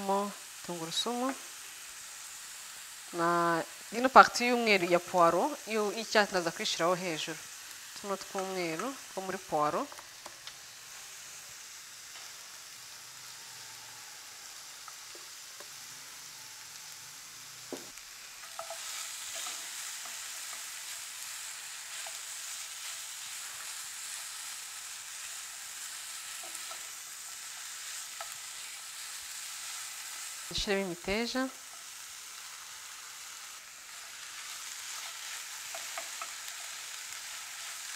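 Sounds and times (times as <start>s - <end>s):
vegetables sizzling in frying pan: 0.0s - 37.9s
spatula scraping pan: 18.3s - 24.6s.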